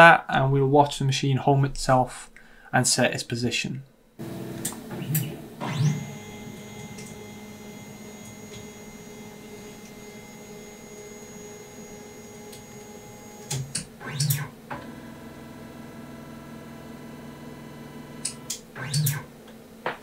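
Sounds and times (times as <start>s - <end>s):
stepper motors whining: 4.2s - 19.2s.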